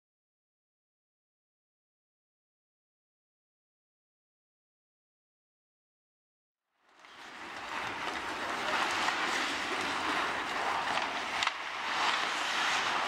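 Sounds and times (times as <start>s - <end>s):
skates scraping on ice: 6.8s - 13.0s.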